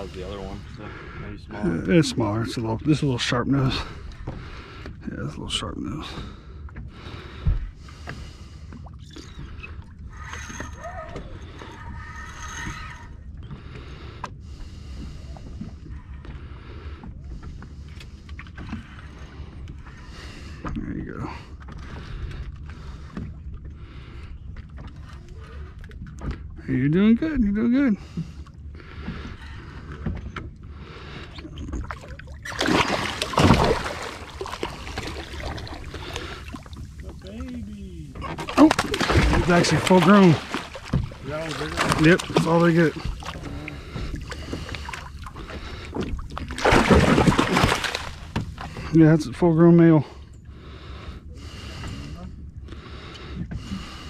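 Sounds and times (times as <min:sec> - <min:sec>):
steady low rumble: 0:00.0 - 0:10.2, 0:11.2 - 0:54.0
water sloshing against boat hull: 0:00.0 - 0:54.0
fish thrashing and splashing: 0:31.6 - 0:48.9.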